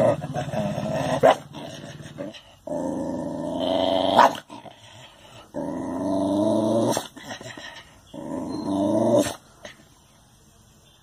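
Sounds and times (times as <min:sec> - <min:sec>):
dog growling: 0:00.0 - 0:09.4.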